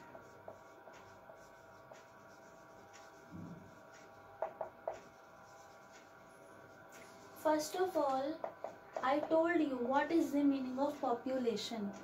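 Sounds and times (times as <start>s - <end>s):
marker writing on a whiteboard: 0.0s - 11.0s.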